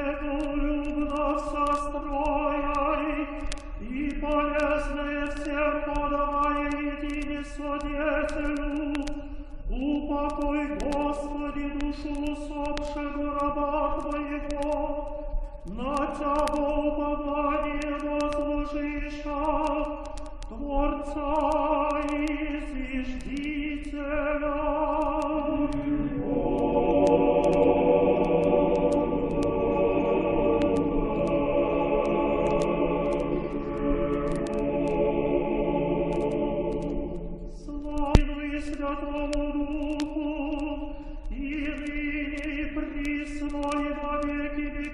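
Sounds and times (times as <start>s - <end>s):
voices chanting in long held notes: 24.6s - 37.8s
choir singing in harmony: 25.2s - 37.9s.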